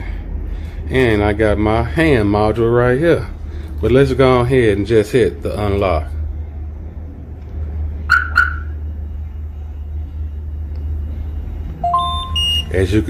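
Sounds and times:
steady low rumble: 0.0s - 13.0s
car alarm chirps: 8.0s - 9.0s, 11.8s - 13.0s
remote beeping: 11.8s - 12.9s.

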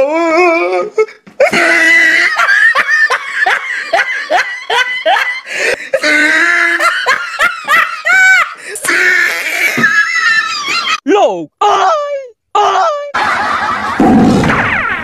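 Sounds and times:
people laughing hard: 1.4s - 11.0s, 13.1s - 15.0s.

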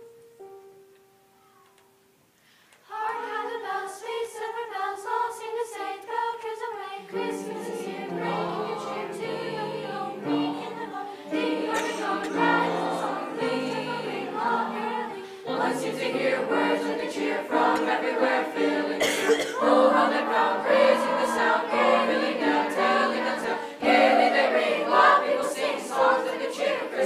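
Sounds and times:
choir singing in parts: 2.8s - 27.0s.

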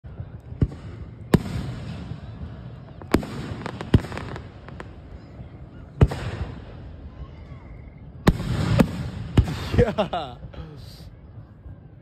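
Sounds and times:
fireworks bangs: 0.1s - 7.2s, 8.0s - 10.1s
small firework pops: 0.2s - 2.2s, 2.9s - 5.1s, 6.0s - 6.7s.

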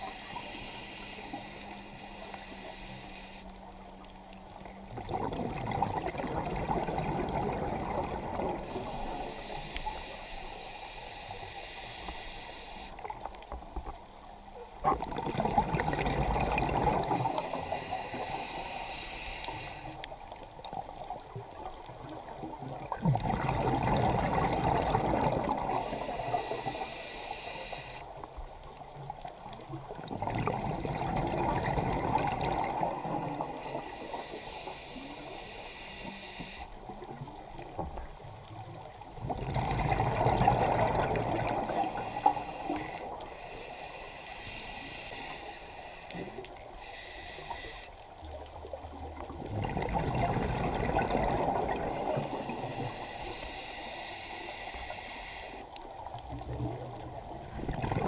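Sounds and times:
diver exhaling bubbles underwater: 4.9s - 8.8s, 14.8s - 17.3s, 22.8s - 26.0s, 29.9s - 33.6s, 39.2s - 42.0s, 49.2s - 52.9s, 56.5s - 58.0s.

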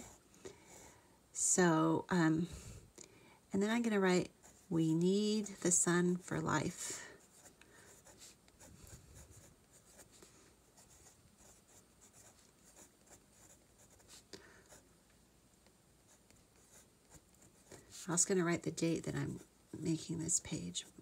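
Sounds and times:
pencil scratching on paper: 7.2s - 14.8s, 16.1s - 18.2s.

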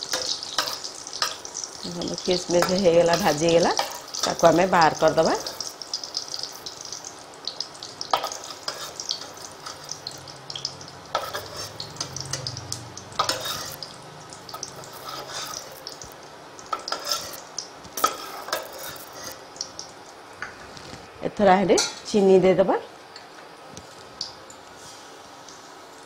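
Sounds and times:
ghee sizzling: 0.0s - 26.0s
metal spatula scraping pan: 8.2s - 10.0s, 11.1s - 12.6s, 13.2s - 15.8s, 16.7s - 17.4s, 18.0s - 19.4s.

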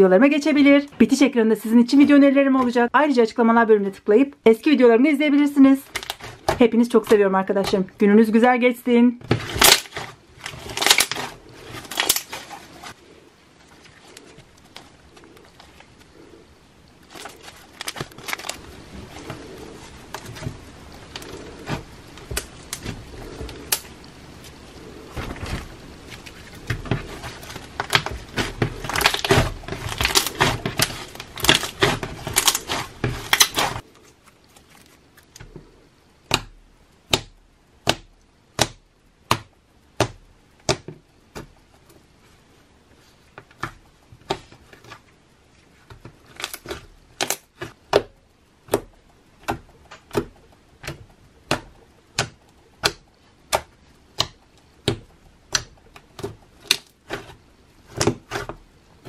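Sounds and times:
slime crackling and squelching: 9.2s - 36.5s.

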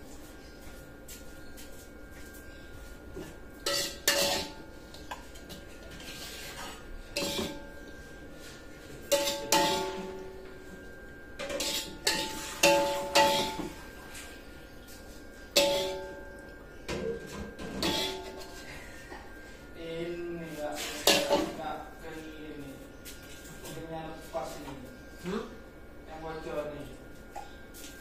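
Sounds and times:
metal spatula scraping a wok: 3.7s - 4.6s, 5.9s - 7.7s, 9.1s - 10.1s, 11.5s - 13.7s, 15.6s - 16.1s, 17.8s - 18.6s.

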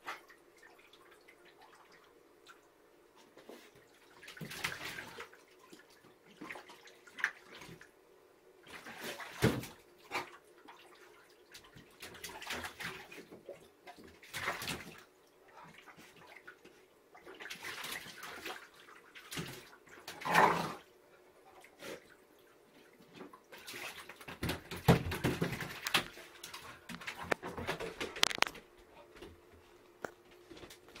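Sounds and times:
dog splashing in water: 4.1s - 7.8s, 8.6s - 16.5s, 17.2s - 20.8s, 23.5s - 28.1s.

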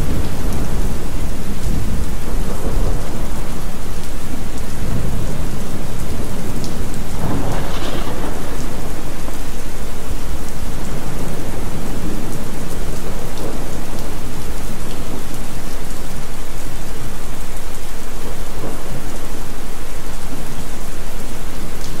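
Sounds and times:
thunder: 0.0s - 3.8s, 4.4s - 14.3s
heavy rain: 0.0s - 22.0s.

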